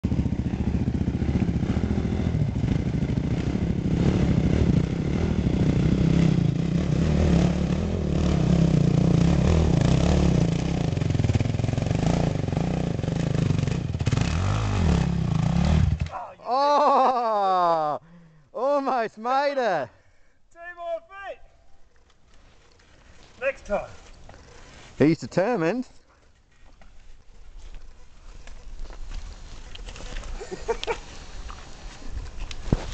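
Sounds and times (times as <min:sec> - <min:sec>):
dirt bike engines revving: 0:00.0 - 0:17.9, 0:22.5 - 0:25.9, 0:27.6 - 0:32.0.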